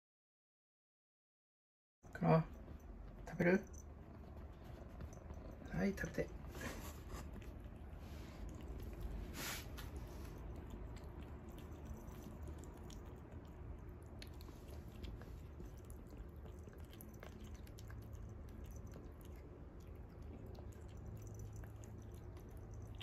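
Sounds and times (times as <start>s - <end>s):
kitten chewing wet food: 2.5s - 23.0s.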